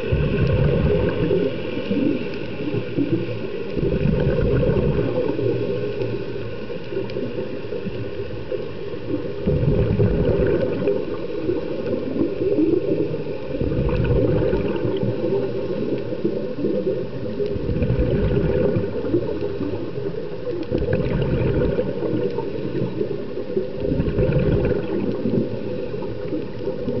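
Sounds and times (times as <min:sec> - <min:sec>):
exhaled bubbles underwater: 0:00.0 - 0:27.0
steady underwater hiss: 0:00.0 - 0:27.0.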